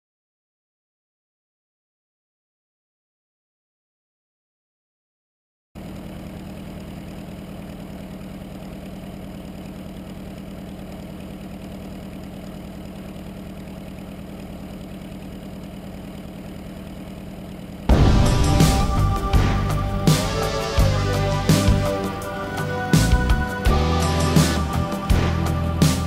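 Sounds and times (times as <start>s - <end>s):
plane engine idling: 5.8s - 26.0s
loud music: 17.9s - 26.0s.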